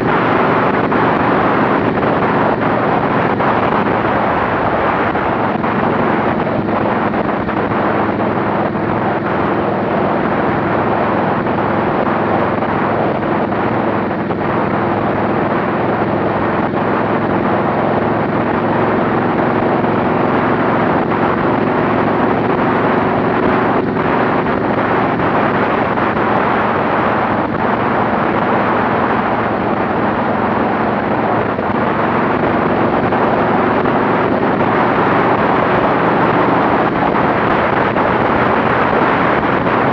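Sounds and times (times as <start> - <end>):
motorcycle engine cruising: 0.0 - 39.9
wind rushing over microphone: 0.0 - 39.9.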